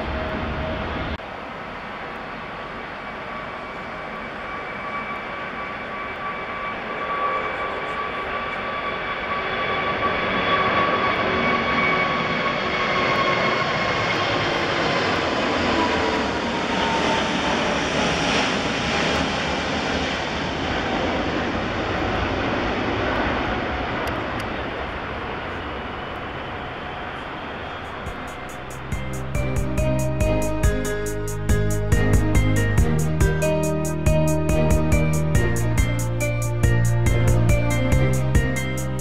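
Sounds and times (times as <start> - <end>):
jet airliner taking off: 0.0 - 39.0
high engine whine: 26.1 - 39.0.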